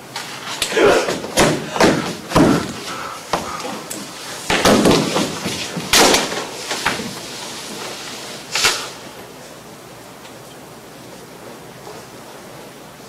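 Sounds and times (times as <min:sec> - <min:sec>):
person crying out and groaning: 0:00.7 - 0:02.8
body thumping on wooden floor: 0:00.9 - 0:03.6, 0:04.5 - 0:07.1.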